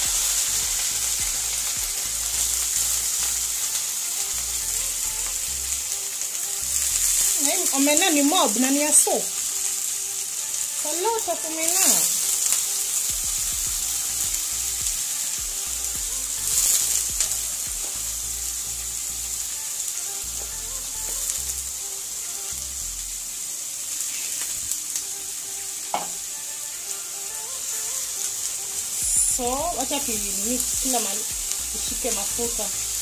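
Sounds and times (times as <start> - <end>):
fish sizzling in hot oil: 0.0 - 33.0
sharp knock: 26.0 - 26.2.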